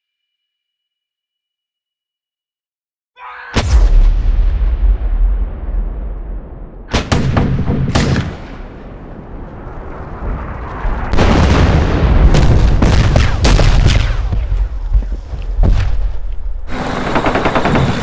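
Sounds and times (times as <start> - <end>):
shell explosions: 3.6 - 16.2
heavy rumble: 4.0 - 17.0.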